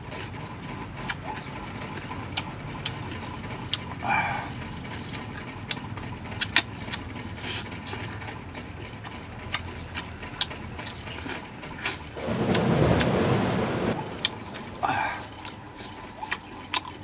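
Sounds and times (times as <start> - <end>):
man chewing with lip smacks: 0.0 - 12.2, 15.2 - 17.0
loud rushing noise: 12.2 - 15.3.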